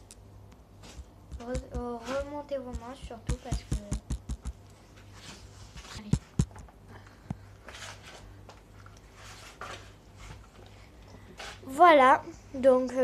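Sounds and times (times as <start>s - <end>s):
steady low hum: 0.0s - 13.0s
hands squishing dough: 0.6s - 4.6s.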